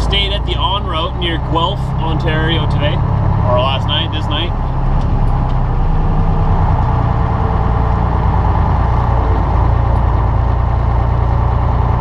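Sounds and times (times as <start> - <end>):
truck diesel engine running: 0.0 - 12.0.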